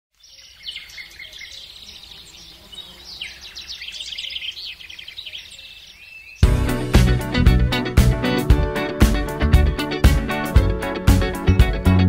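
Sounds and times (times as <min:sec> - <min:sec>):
birds singing and chirping: 0:00.1 - 0:06.5.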